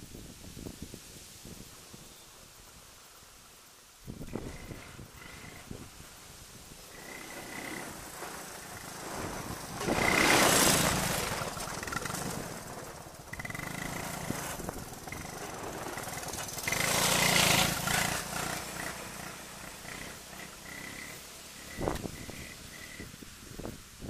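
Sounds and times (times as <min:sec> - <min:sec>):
three-wheeler engine revving: 0:04.3 - 0:23.2.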